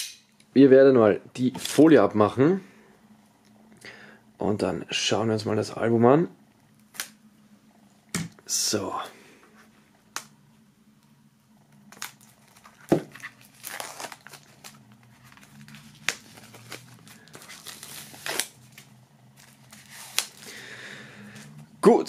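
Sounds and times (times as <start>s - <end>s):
plastic wrap crinkling: 11.8s - 20.7s.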